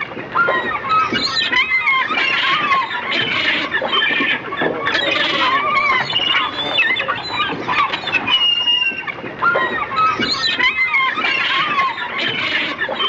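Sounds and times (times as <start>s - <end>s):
birds squawking in chorus: 0.5s - 13.0s.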